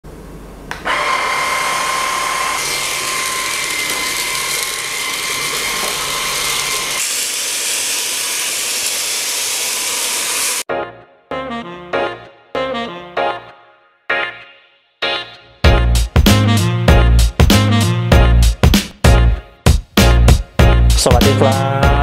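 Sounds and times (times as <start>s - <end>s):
vacuum cleaner motor whine: 0.7s - 10.6s.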